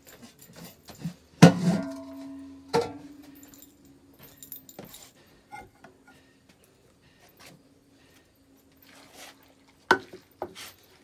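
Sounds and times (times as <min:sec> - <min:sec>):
metal pot clanking on floor: 0:01.4 - 0:03.3.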